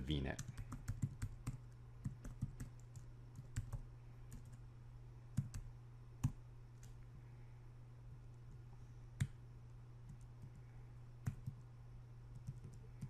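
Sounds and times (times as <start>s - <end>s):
faint low hum: 0.0s - 13.0s
keyboard typing clicks: 0.4s - 4.6s, 5.4s - 7.0s, 11.2s - 11.6s.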